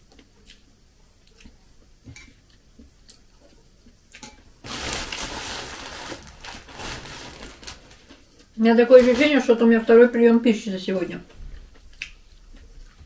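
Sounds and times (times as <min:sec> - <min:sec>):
plastic bag crinkling: 0:04.6 - 0:08.2, 0:08.8 - 0:09.6.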